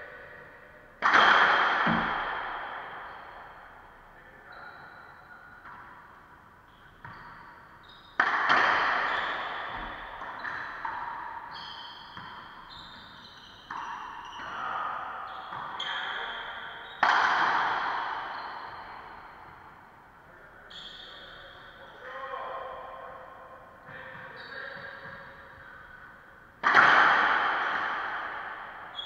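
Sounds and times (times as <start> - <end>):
racquet hitting ball: 0.2 - 4.2, 5.0 - 20.1, 23.4 - 29.0
ball hitting court walls: 1.0 - 4.0, 5.6 - 19.8, 26.6 - 29.0.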